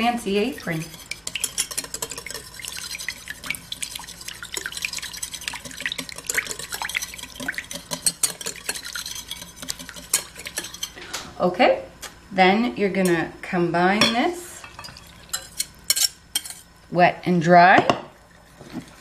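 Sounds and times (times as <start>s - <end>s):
wire whisk beating in bowl: 0.0s - 11.0s.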